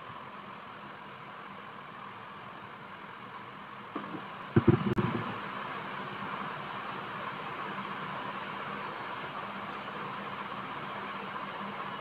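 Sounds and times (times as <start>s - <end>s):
background hiss: 0.0s - 12.0s
knocks and handling noise: 4.0s - 5.4s.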